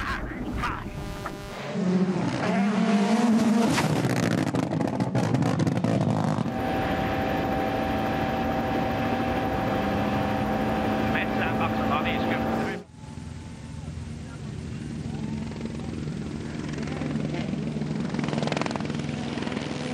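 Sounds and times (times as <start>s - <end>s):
steady engine drone with whine: 0.0s - 19.9s
rally car engine revving: 0.5s - 12.8s.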